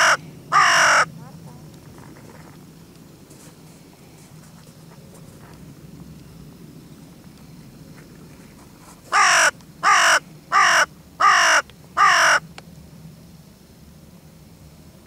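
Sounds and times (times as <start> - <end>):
crow cawing: 0.0 - 1.1, 9.1 - 12.4.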